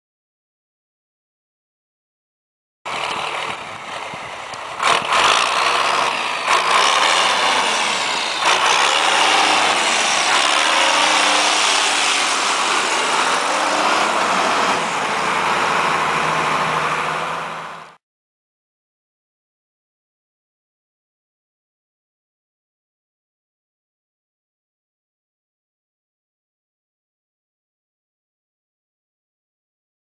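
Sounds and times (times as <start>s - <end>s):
tractor diesel engine running: 2.9s - 18.0s.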